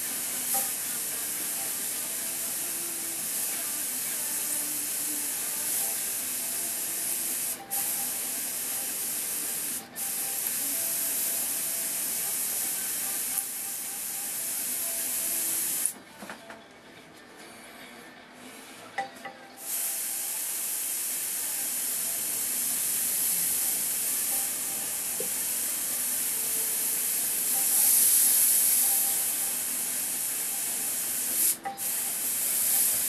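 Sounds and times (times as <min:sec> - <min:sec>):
airbrush air hiss: 0:00.0 - 0:16.0, 0:19.6 - 0:33.0.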